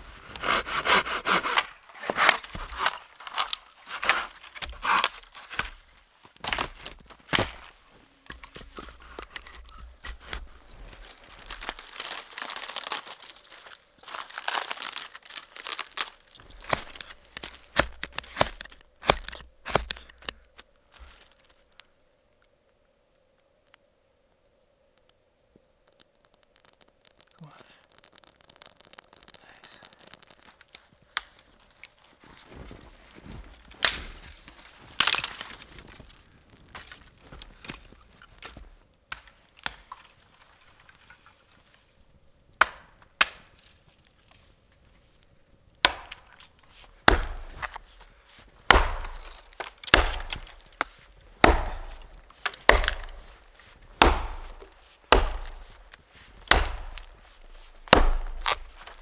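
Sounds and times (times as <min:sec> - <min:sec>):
wood being chopped: 0:00.4 - 0:05.8, 0:06.4 - 0:13.3, 0:14.1 - 0:21.3, 0:33.8 - 0:36.1, 0:36.7 - 0:40.1, 0:42.6 - 0:43.6, 0:45.8 - 0:48.0, 0:48.6 - 0:59.0.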